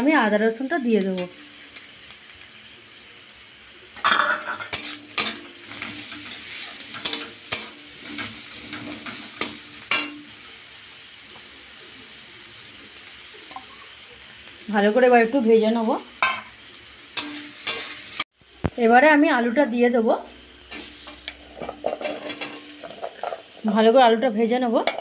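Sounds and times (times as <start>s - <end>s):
onions sizzling in hot oil: 0.0s - 25.0s
metal spatula scraping pan: 4.0s - 10.3s, 17.2s - 18.2s, 20.7s - 23.7s.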